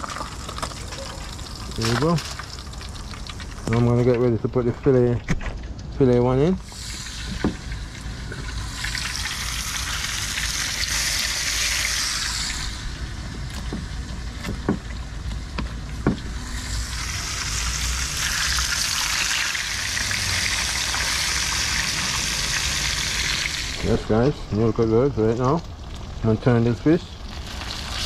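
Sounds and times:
fish sizzling in hot oil: 0.0s - 4.0s, 6.6s - 23.9s, 27.2s - 28.0s.

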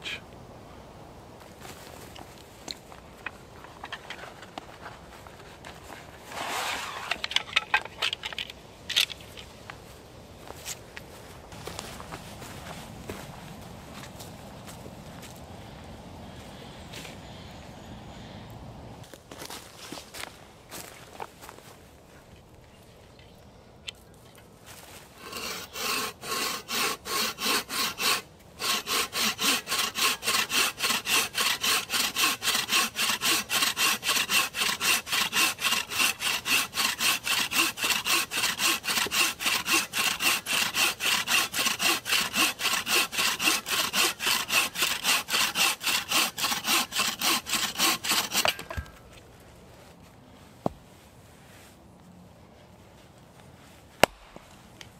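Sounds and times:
bow saw cutting log: 6.2s - 9.1s, 25.2s - 49.0s, 54.0s - 54.6s.

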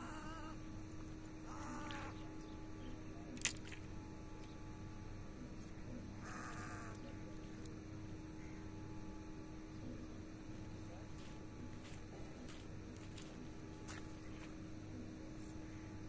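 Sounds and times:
wavering animal call: 0.0s - 0.7s, 1.4s - 2.3s
low steady hum: 0.0s - 16.0s.

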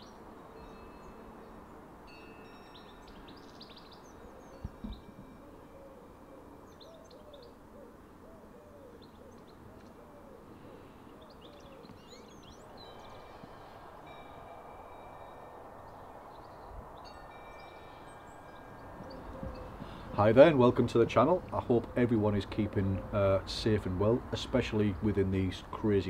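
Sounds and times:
songbirds chirping: 0.0s - 26.0s
pigeon cooing: 4.2s - 12.8s, 19.0s - 20.2s, 21.6s - 23.4s.

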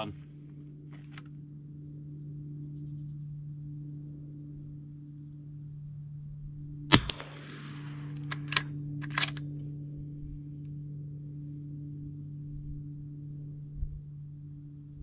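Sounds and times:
suppressed rifle shot: 6.9s - 9.6s
rifle bolt clicks: 8.1s - 9.4s.

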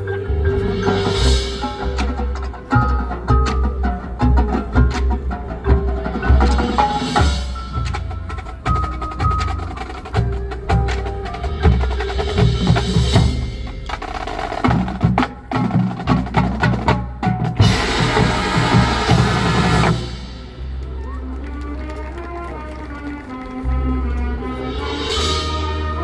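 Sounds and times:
mallet keyboard notes: 0.0s - 21.3s
fast drum roll: 1.5s - 20.6s.

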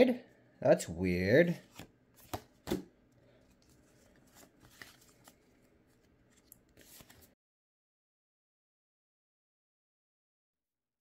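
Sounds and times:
trading cards flipped by hand: 1.6s - 2.9s, 3.5s - 7.4s.

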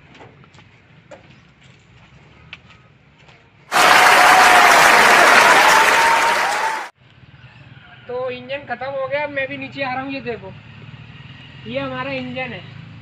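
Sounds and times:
audience applauding: 3.7s - 6.9s.

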